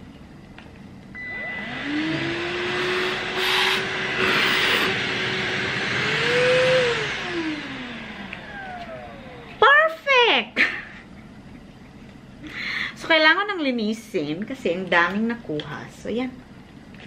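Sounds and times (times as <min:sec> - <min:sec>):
handheld vacuum cleaner whining: 0:01.2 - 0:09.7.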